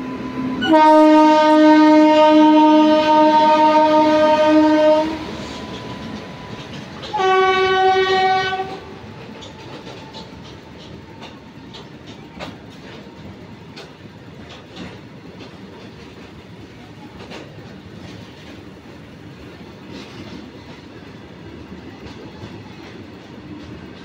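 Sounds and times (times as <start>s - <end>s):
train wheels rumbling on rail: 0.0s - 24.0s
wheels clicking over rail joints: 2.8s - 24.0s.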